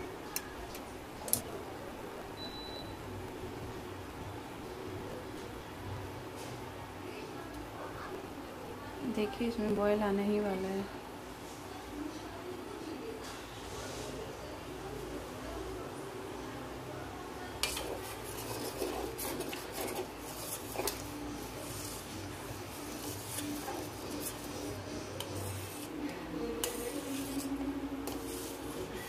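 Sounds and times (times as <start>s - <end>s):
spoon stirring and scraping a pot: 17.6s - 29.0s.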